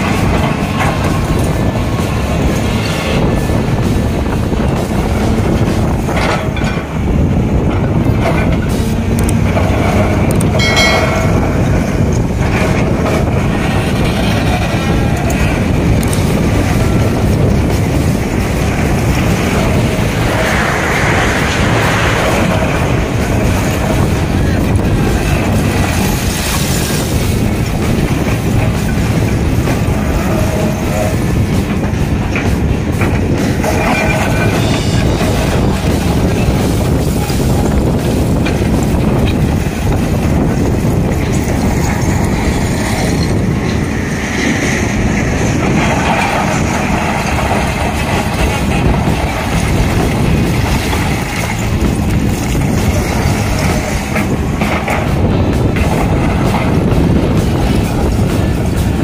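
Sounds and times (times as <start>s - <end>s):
high whine: 0.0s - 47.0s
excavator diesel engine running: 0.0s - 59.0s.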